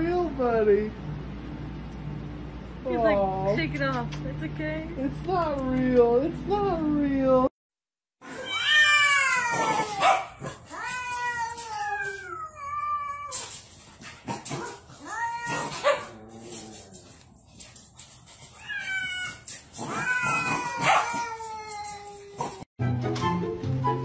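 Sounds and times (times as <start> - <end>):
cat yowling: 8.2 - 13.4, 15.0 - 16.7, 18.6 - 22.6.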